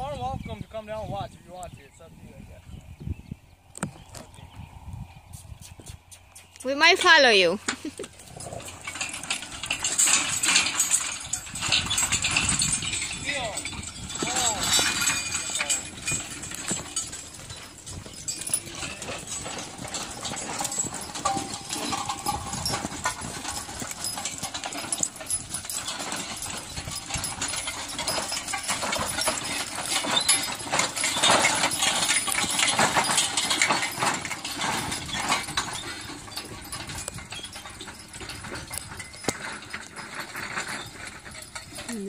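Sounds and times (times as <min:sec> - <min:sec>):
hooves clopping on dirt: 0:03.7 - 0:42.0
farm implement clattering: 0:06.0 - 0:42.0
harness chains jingling: 0:06.0 - 0:42.0.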